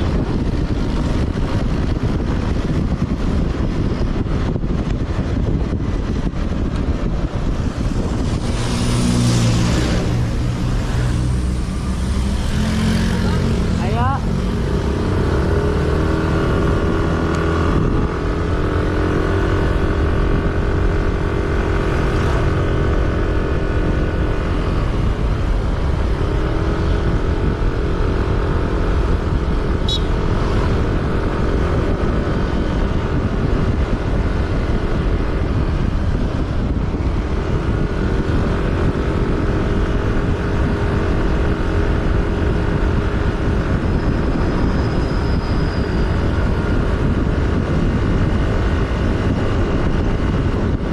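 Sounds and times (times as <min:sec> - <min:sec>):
vehicle engine running: 0:00.0 - 0:27.8
road and wind rumble: 0:00.0 - 0:50.9.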